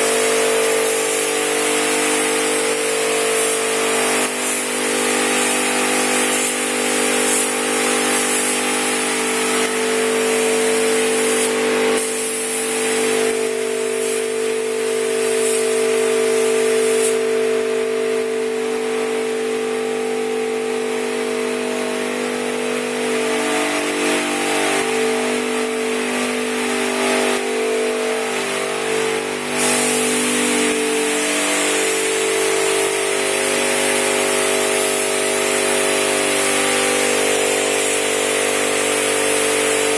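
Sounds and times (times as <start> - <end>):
spray gun hissing: 0.0 - 17.3, 29.2 - 39.9.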